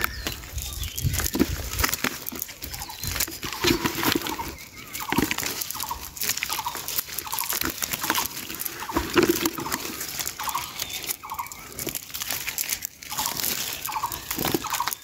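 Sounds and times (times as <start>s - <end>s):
fish flapping in a tub: 0.0s - 15.0s
net and dry leaves rustling: 0.0s - 15.0s.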